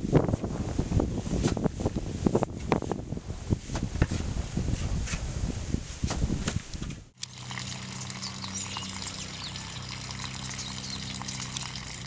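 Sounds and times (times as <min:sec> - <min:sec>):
water running and pouring: 0:07.2 - 0:12.0
birds chirping: 0:07.3 - 0:12.0.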